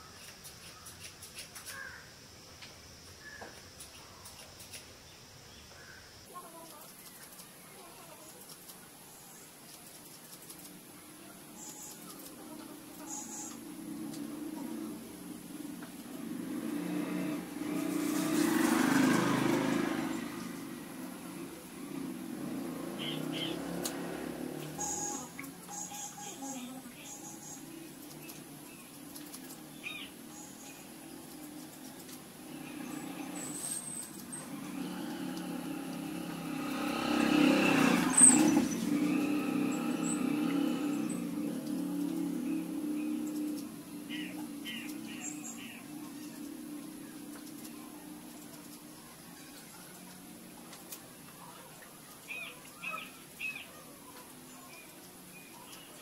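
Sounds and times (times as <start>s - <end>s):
vehicle engine passing by: 11.2s - 51.2s.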